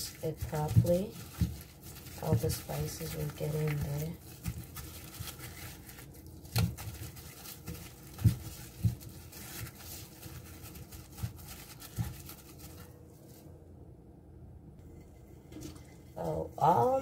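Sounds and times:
wet squishing of raw fish: 0.2s - 12.6s.

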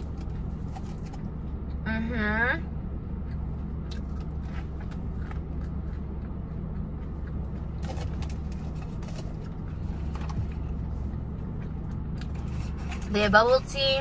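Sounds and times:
car engine idling: 0.0s - 14.0s
person chewing food: 3.1s - 13.1s
clicks and rustles of food handling: 7.5s - 10.9s.

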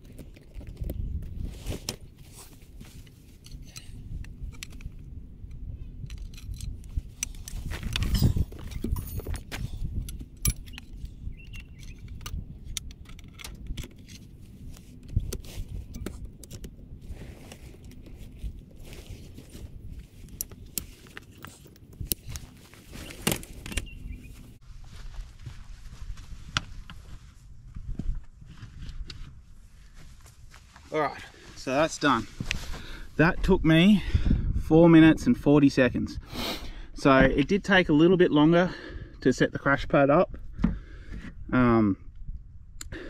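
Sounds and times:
metal tent poles clicking and rattling: 1.6s - 5.0s, 6.0s - 24.0s
footsteps on dry grass: 17.0s - 33.2s.

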